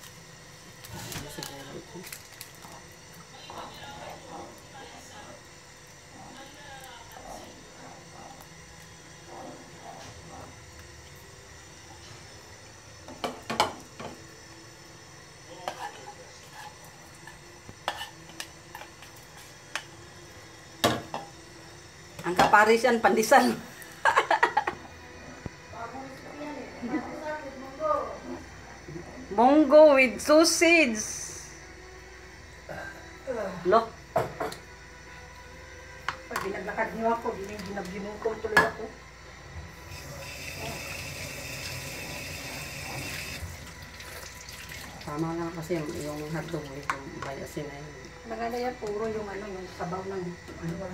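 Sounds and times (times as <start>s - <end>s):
water running from a tap: 39.7s - 47.4s.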